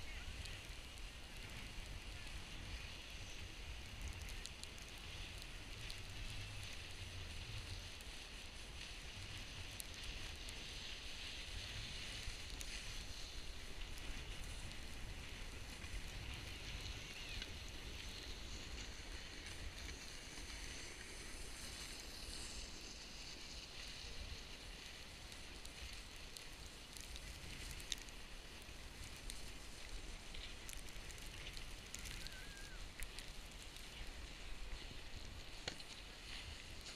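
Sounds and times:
wind rumble on microphone: 0.0s - 36.9s
snowboard hissing on snow: 4.6s - 36.9s.

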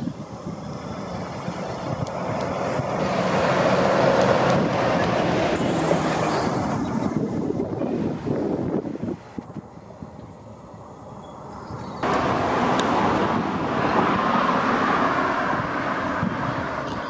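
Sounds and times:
wind on microphone: 0.0s - 10.4s, 11.5s - 17.0s
fire engine driving past: 0.0s - 16.9s.

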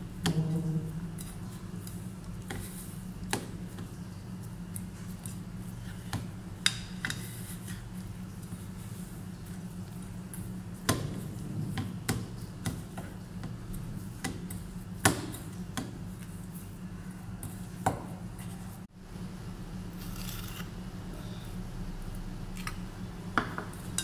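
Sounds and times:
hands kneading sticky dough: 0.0s - 18.9s
steady low hum: 0.0s - 24.0s.

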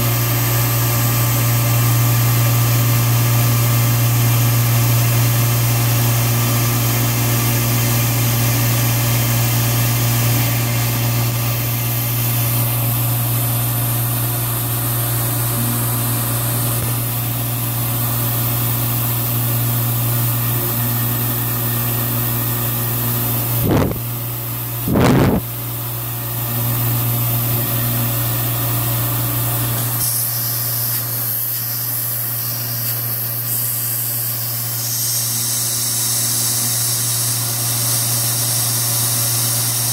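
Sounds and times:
milling machine hum: 0.0s - 39.9s
loud thumps: 23.6s - 24.1s, 24.9s - 25.5s
high hiss of bit cutting metal: 30.0s - 39.9s.

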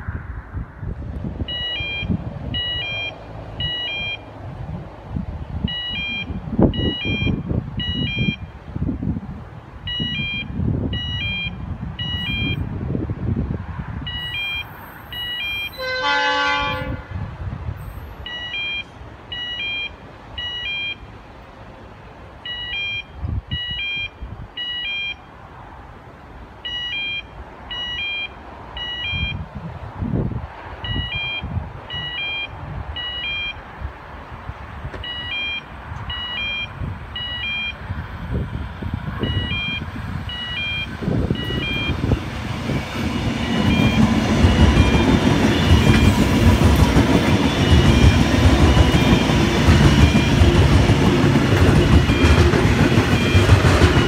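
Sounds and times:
short high beeps: 1.5s - 4.3s, 5.7s - 8.5s, 9.9s - 12.6s, 14.1s - 15.8s, 18.0s - 21.0s, 22.4s - 25.3s, 26.6s - 29.4s, 30.8s - 33.6s, 35.0s - 37.8s, 39.2s - 42.1s, 42.8s - 46.2s, 47.4s - 50.6s, 53.1s - 54.0s
train horn: 15.8s - 17.2s.

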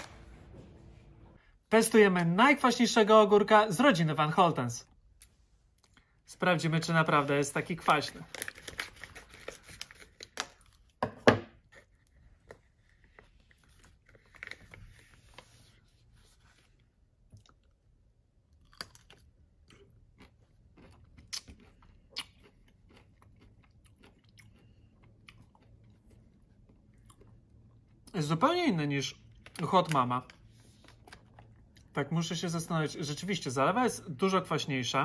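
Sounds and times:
plastic pouch crinkling: 7.6s - 10.6s
crunchy pickle bites: 18.5s - 24.6s
wet chewing: 18.5s - 28.1s, 29.1s - 32.0s.

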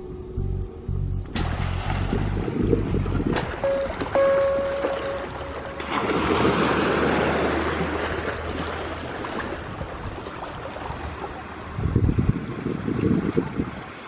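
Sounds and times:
wind on microphone: 0.0s - 4.9s, 9.6s - 14.0s
sea water lapping at shore: 1.3s - 14.0s.

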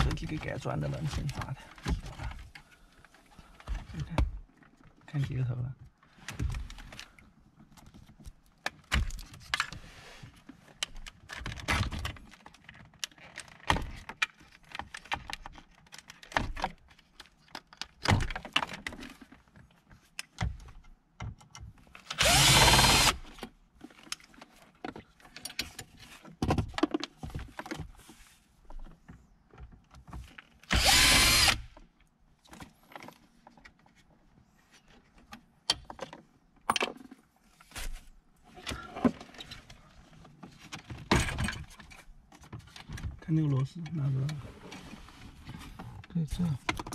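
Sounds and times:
cordless drill running: 22.2s - 23.2s, 30.7s - 31.7s
plastic clicks and knocks: 46.6s - 46.9s.

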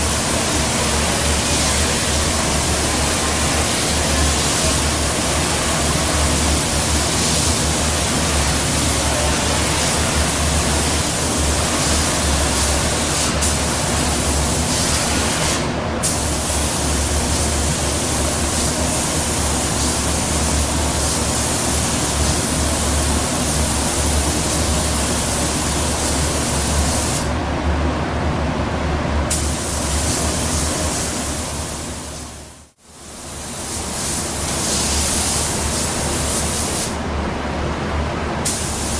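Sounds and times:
spray gun hissing: 0.0s - 27.3s, 29.3s - 32.3s, 33.5s - 37.0s, 38.4s - 38.9s.

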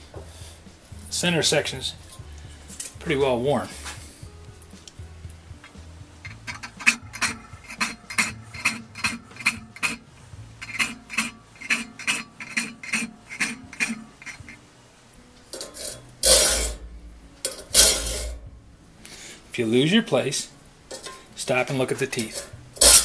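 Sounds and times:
file rasping on saw teeth: 6.3s - 14.6s.

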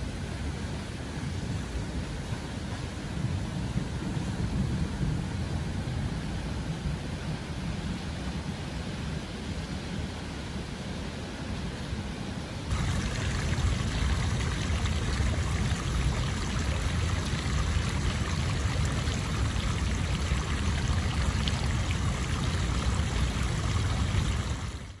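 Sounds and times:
water gushing onto concrete: 12.7s - 25.0s.

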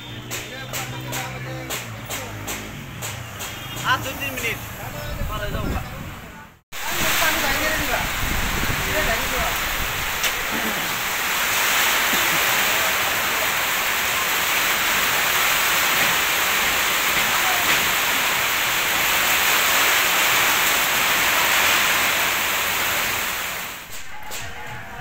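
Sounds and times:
heavy rain pouring: 6.7s - 25.0s.

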